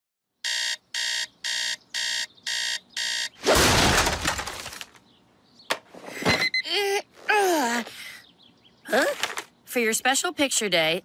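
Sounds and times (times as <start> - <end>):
alarm clock beeping: 0.4 - 3.4.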